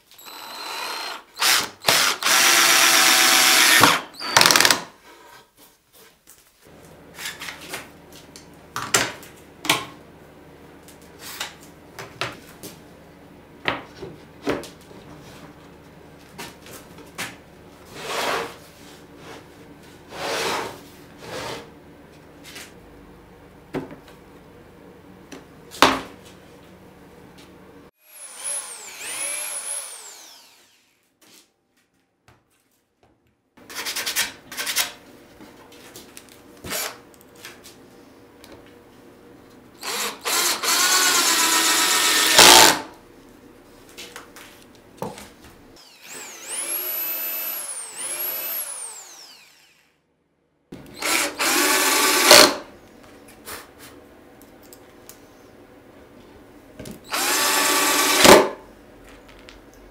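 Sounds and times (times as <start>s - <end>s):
cordless drill driving screws into wood: 0.2s - 4.9s, 39.8s - 42.9s, 45.8s - 49.9s, 50.9s - 52.6s, 57.1s - 58.6s.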